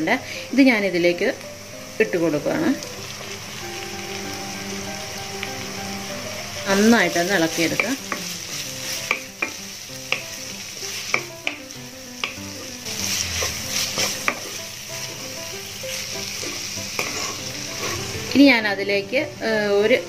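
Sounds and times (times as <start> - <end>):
frying hiss: 0.0 - 20.0
spatula scraping pan: 12.2 - 18.3.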